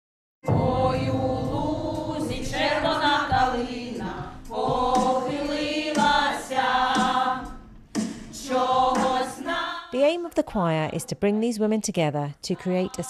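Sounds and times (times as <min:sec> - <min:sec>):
women's choir singing: 0:00.5 - 0:07.6, 0:08.4 - 0:10.0, 0:12.5 - 0:13.0.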